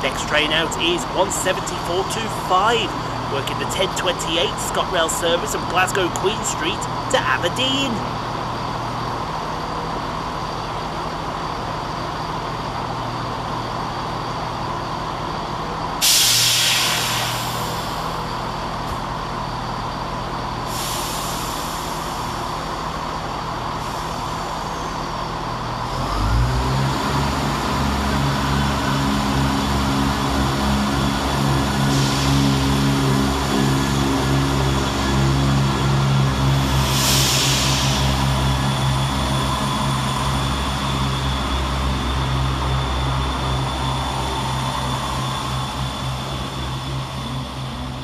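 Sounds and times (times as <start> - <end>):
diesel engines powering up: 0.0 - 48.0
diesel train idling: 0.0 - 48.0
air brake hiss: 16.0 - 18.2, 20.7 - 22.4, 31.8 - 32.7, 36.7 - 38.4.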